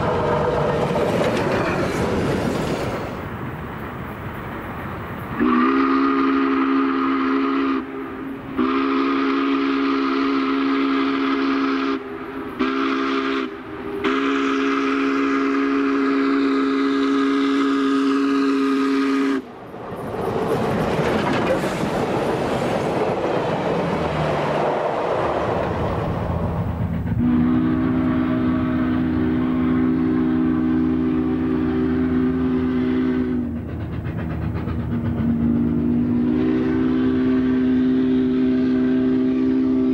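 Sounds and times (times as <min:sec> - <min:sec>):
locomotive rushing past: 0:00.0 - 0:39.9
steam locomotive chime whistle: 0:05.4 - 0:19.5, 0:27.1 - 0:33.5, 0:35.2 - 0:39.9.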